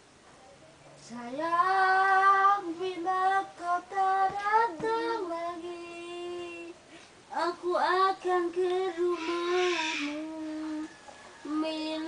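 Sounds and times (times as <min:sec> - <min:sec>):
person singing high voice: 0:07.4 - 0:10.9.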